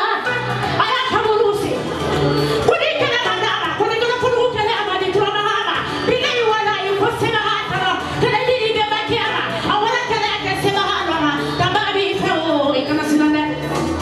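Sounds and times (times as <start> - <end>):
music: 0.0 - 14.0
woman singing: 2.7 - 13.6.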